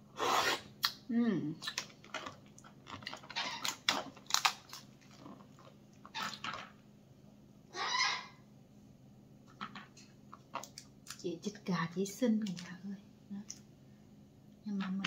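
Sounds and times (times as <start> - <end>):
wet chewing and lip-smacking: 1.6 - 6.6.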